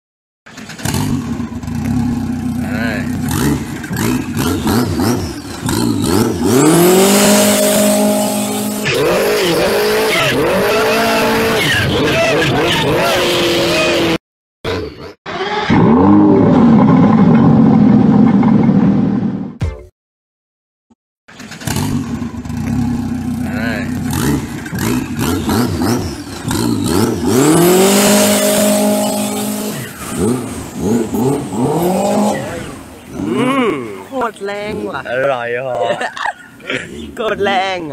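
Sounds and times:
boat engine revving: 0.5 - 14.2, 15.3 - 19.4, 21.6 - 35.2.

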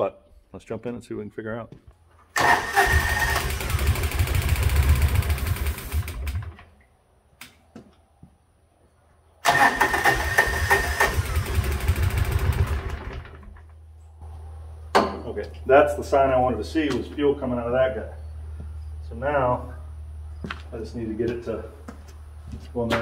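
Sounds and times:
engine cranking by starter: 2.4 - 6.7, 9.4 - 13.8
high starter whine: 2.4 - 6.7, 9.4 - 13.8.

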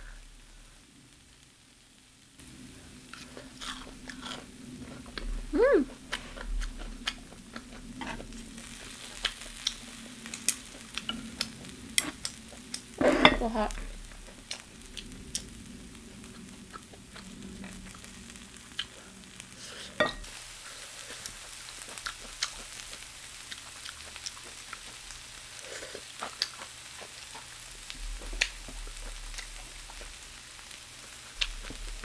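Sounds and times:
food sizzling on griddle: 0.0 - 32.0.

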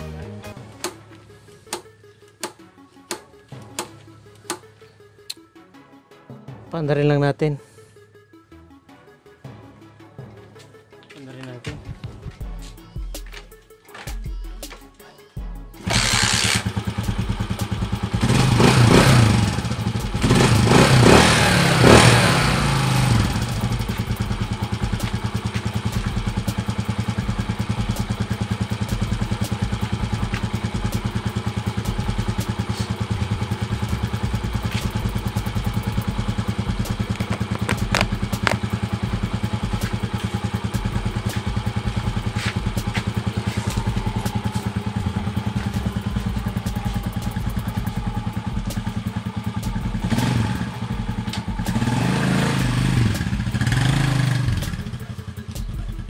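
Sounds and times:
motorcycle engine revving and idling: 15.8 - 56.0.

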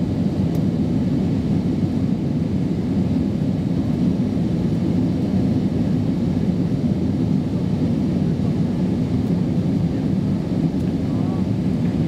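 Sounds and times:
jet engines and airflow roar: 0.0 - 12.0.

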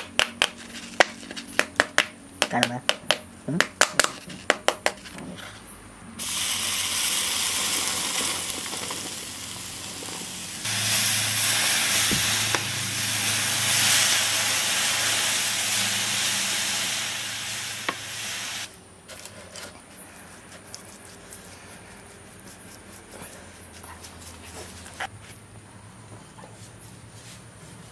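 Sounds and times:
molten metal sizzling and hissing: 6.2 - 18.7
low hum: 9.6 - 18.7.

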